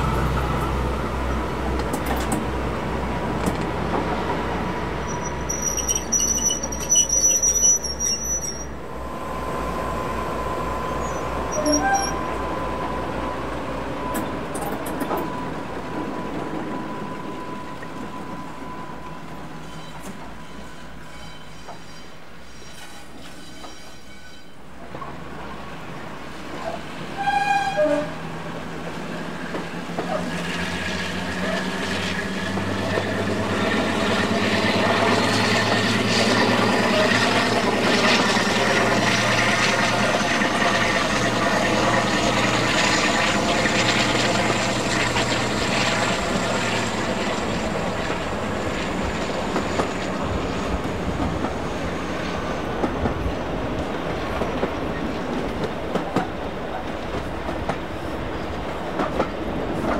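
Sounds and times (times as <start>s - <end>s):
locomotive horn: 11.0s - 12.4s, 27.2s - 28.2s.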